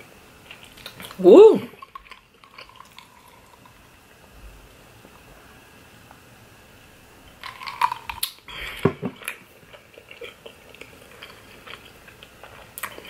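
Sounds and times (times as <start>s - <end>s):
mouth sounds of eating and drinking: 0.4s - 3.8s.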